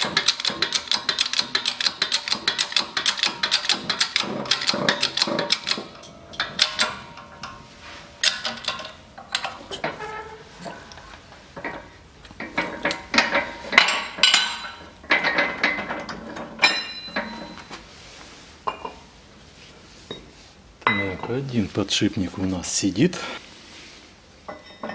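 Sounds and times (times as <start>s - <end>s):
metallic clinks and clanks: 0.0s - 17.7s, 24.5s - 24.9s
ringing metal clink: 16.6s - 17.6s.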